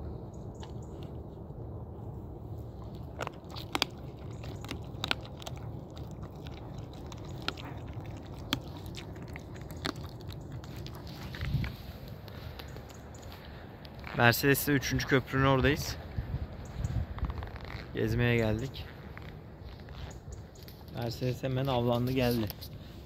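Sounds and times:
dog chewing bones: 2.6s - 14.2s.

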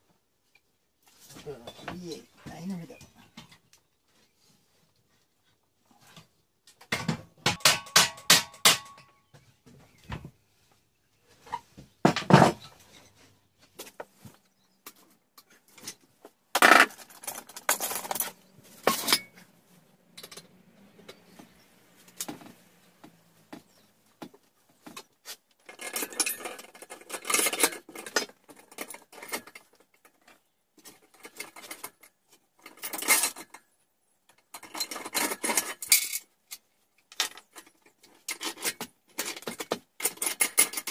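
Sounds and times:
steel parts clinking: 16.6s - 19.4s, 25.6s - 30.2s, 34.5s - 40.9s.

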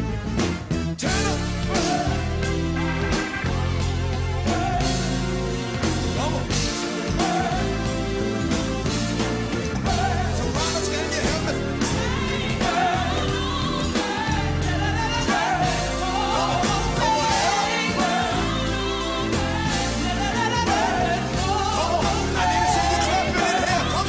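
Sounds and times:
band accompaniment: 0.0s - 24.0s
steady bass line: 0.0s - 24.0s.

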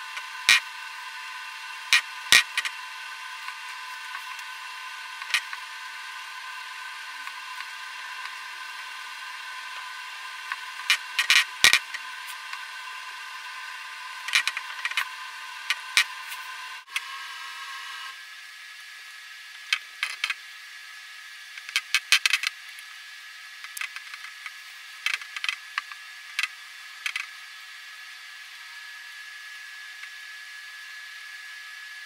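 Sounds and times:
faint high whine: 0.0s - 21.6s.

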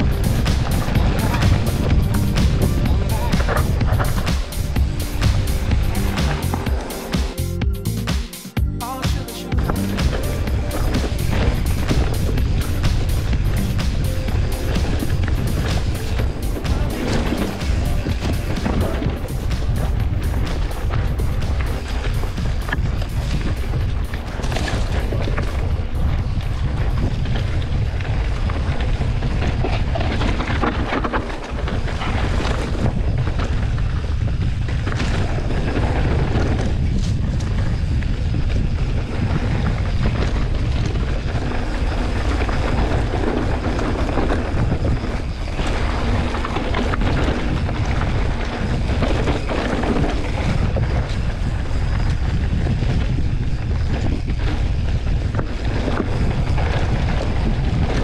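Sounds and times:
wind buffeting microphone: 0.0s - 6.9s, 9.6s - 58.0s
bike knocking and rattling: 0.0s - 7.4s, 9.6s - 58.0s
tyres rumbling on ground: 0.0s - 8.0s, 9.1s - 28.7s.

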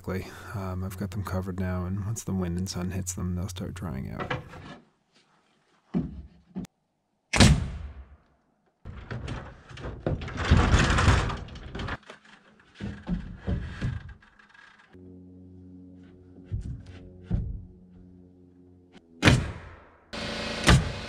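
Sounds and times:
stepladder and lumber scraping: 4.2s - 4.9s, 8.9s - 15.0s
wood knocks: 5.9s - 6.7s, 8.9s - 14.4s, 16.4s - 17.8s
nail gun bang: 7.3s - 8.1s, 19.2s - 19.9s, 20.5s - 21.0s
background music: 15.0s - 19.8s.

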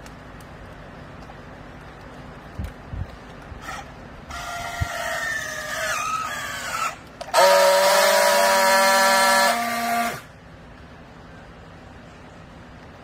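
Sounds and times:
strapping tool motor whine: 6.1s - 10.3s.

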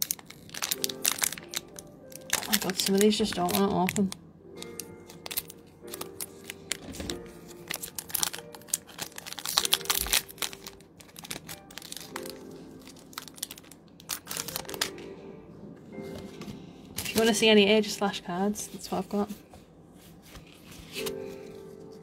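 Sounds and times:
foil wrapper crinkling and tearing: 0.0s - 15.1s
faint background music: 0.0s - 22.0s.

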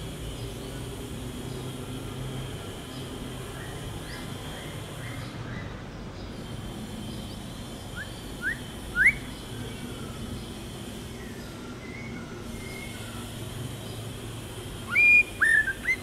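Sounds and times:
bird whistling: 8.0s - 10.2s, 11.8s - 13.2s, 14.9s - 16.0s.

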